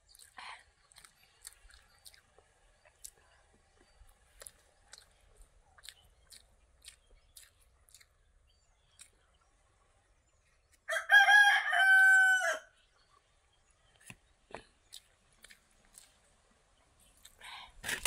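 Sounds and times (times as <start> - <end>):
wet eating clicks and smacks: 0.0 - 8.2, 8.9 - 9.2, 14.0 - 16.2
rooster crowing: 10.9 - 12.8.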